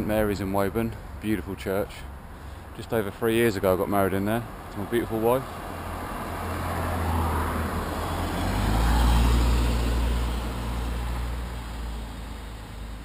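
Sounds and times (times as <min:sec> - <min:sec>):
vehicle driving past: 0:04.9 - 0:13.0.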